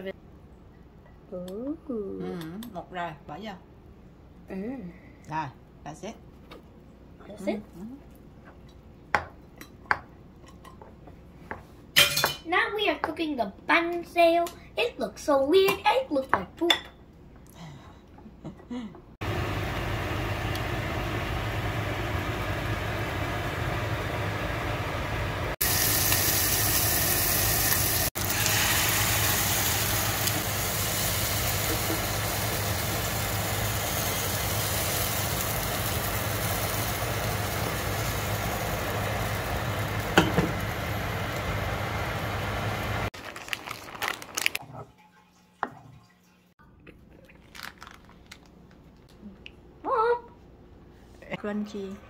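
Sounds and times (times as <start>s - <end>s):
batter sizzling in a pan: 25.6s - 43.1s.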